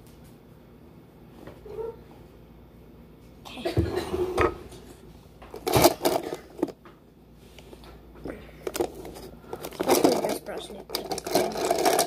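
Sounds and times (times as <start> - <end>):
clicks and rustles of handling: 7.6 - 12.0
small objects knocking: 8.6 - 12.0.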